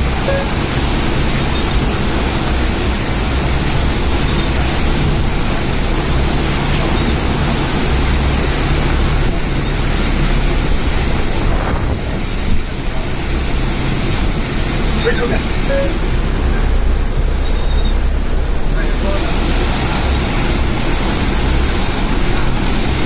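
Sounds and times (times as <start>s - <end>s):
wind buffeting microphone: 0.0s - 15.0s
heavy downpour: 0.0s - 23.0s.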